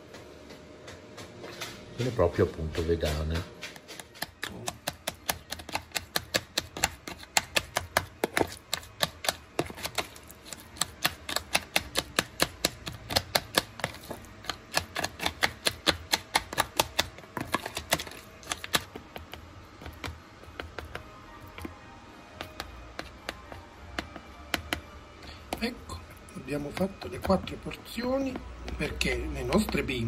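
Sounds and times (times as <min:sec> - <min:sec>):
faint music: 0:00.0 - 0:30.0.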